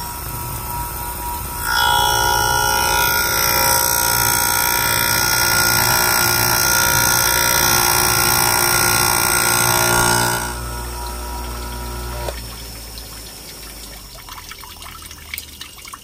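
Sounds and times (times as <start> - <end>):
grinder wheel whining: 0.0 - 12.9
water running onto chain: 0.0 - 16.0.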